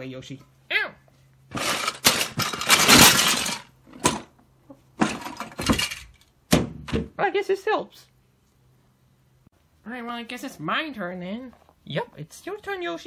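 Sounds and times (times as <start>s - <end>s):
hard objects crashing and clattering: 1.5s - 4.3s, 5.0s - 6.2s.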